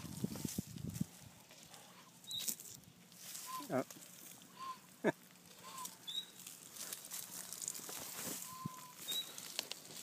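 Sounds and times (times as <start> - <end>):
tortoises crunching leaves: 0.0 - 10.0
short whistled calls: 2.2 - 2.5, 3.4 - 3.8, 4.5 - 4.9, 5.6 - 6.4, 8.3 - 9.4.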